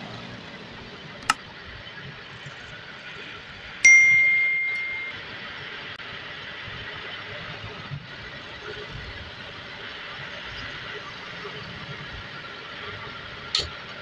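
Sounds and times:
sharp metallic ding: 3.8 - 5.3.

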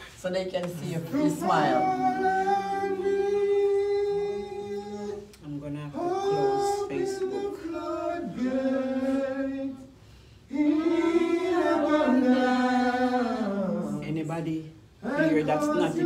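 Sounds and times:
person singing unaccompanied: 6.0 - 9.9.

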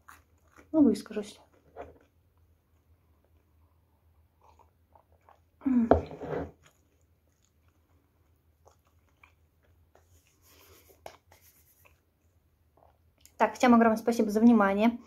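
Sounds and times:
faint chewing: 0.0 - 13.4
person drinking from a mug: 4.4 - 6.7.

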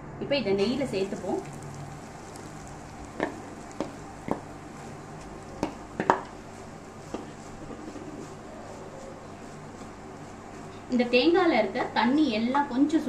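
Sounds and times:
spatula knocking against pan: 3.1 - 4.5, 5.6 - 6.3.

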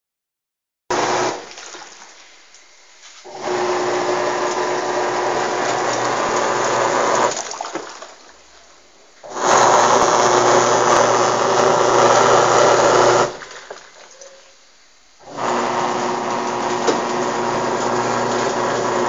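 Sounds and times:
washing machine motor turning: 0.9 - 1.7, 3.2 - 8.0, 9.2 - 13.6, 15.2 - 19.0.

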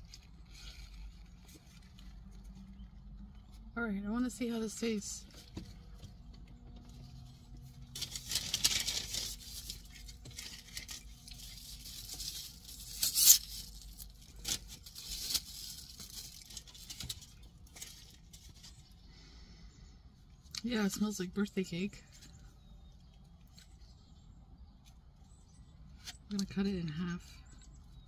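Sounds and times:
food packaging crinkling and tearing: 0.0 - 3.2, 7.0 - 19.0.

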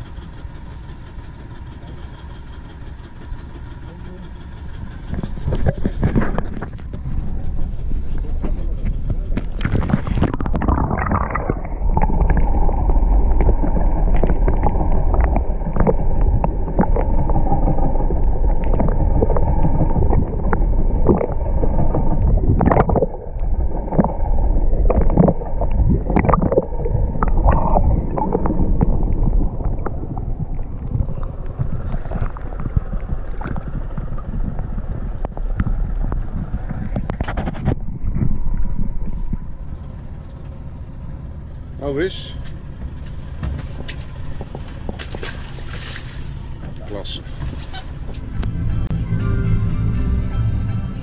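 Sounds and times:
boat engine rumble: 0.0 - 51.0
wind on microphone: 4.9 - 39.7.

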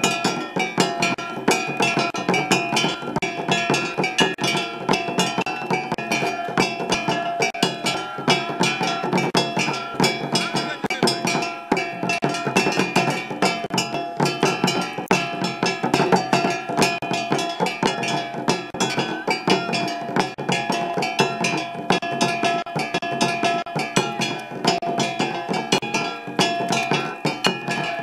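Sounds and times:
fast dense drumming: 0.0 - 28.0
sharp percussion strikes: 0.0 - 28.0.

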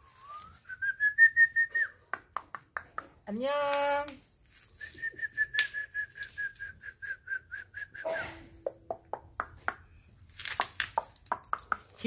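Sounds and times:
short high whistled notes: 4.8 - 8.6.

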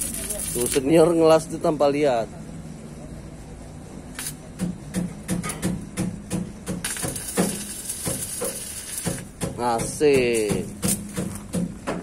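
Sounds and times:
crackling hiss of welding arc: 0.0 - 1.5, 4.1 - 4.4, 6.7 - 11.4.

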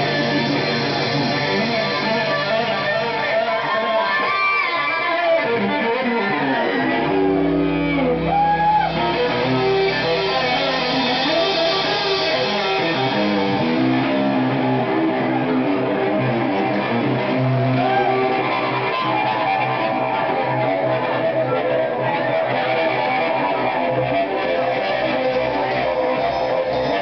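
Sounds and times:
live band music: 0.0 - 27.0.

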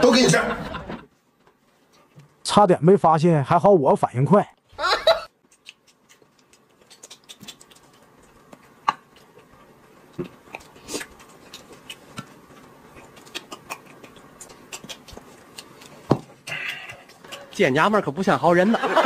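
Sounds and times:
wet mouth clicks and smacks: 5.4 - 9.4, 10.4 - 17.6.

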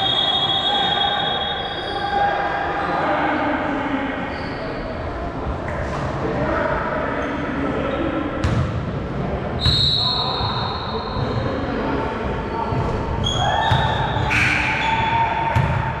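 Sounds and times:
basketball bouncing on gym floor: 8.4 - 8.8, 15.5 - 15.9.

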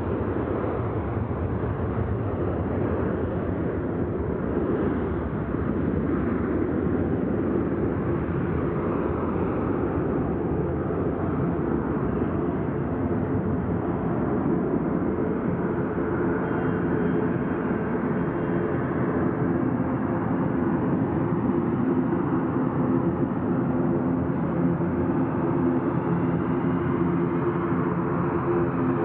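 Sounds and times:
jet engines low rumble: 0.0 - 29.0.

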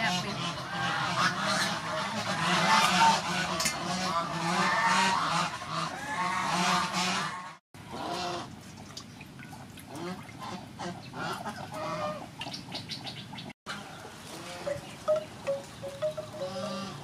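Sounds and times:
farm birds calling: 0.0 - 8.4, 9.9 - 17.0
water splashing and dripping: 8.5 - 10.8.

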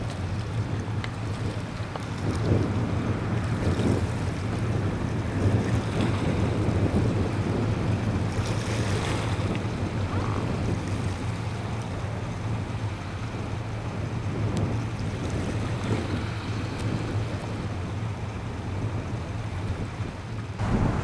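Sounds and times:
small waves washing against rocks: 0.0 - 21.0
wind buffeting microphone: 0.0 - 21.0
steady low hum: 20.5 - 21.0.

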